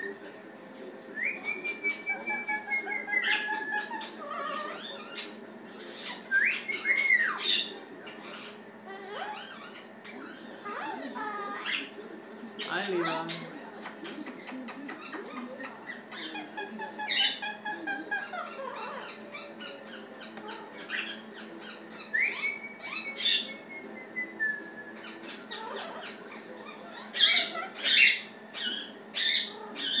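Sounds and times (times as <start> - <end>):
parrot calling and whistling: 1.2 - 11.9, 15.0 - 30.0
parrot squawks: 2.6 - 12.0, 14.1 - 23.6, 24.9 - 30.0.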